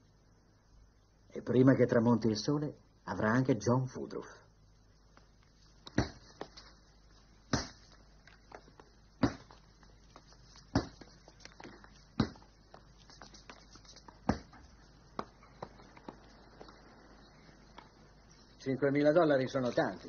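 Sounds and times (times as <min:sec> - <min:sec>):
tennis racket hitting ball: 0:05.8 - 0:06.6, 0:07.5 - 0:09.7, 0:10.6 - 0:12.6, 0:14.2 - 0:16.2.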